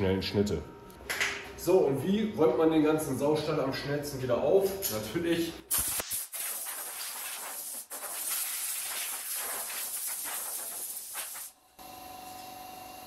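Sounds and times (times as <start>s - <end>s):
air blow gun hissing: 5.7s - 11.5s.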